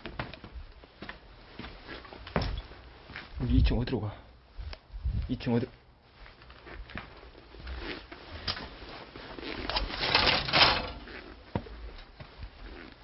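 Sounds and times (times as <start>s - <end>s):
clicking and rattling of footsteps: 0.0s - 3.3s, 6.2s - 13.0s.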